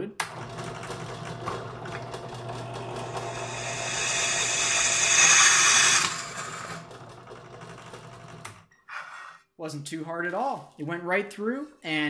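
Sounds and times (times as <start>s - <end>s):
drill press motor hum: 0.2s - 8.6s
drill bit cutting metal: 1.9s - 7.0s.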